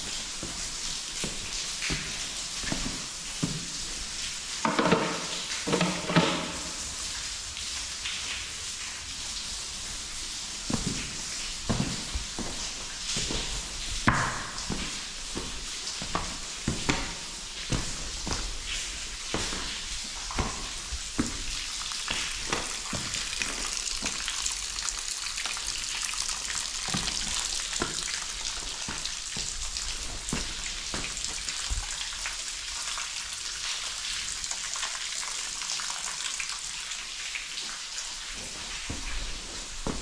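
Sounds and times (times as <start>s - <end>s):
footsteps on stony ground: 10.7s - 23.4s.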